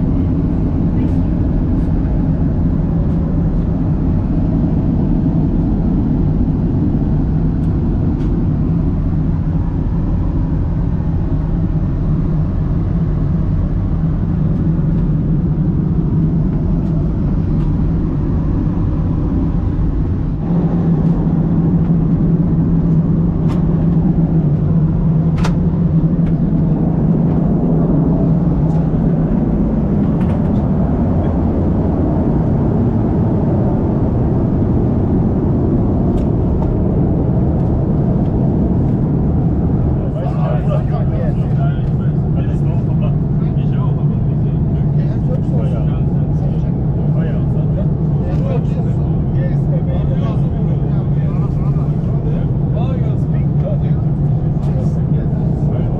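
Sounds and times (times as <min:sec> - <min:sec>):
airplane cabin noise: 0:00.0 - 0:55.9.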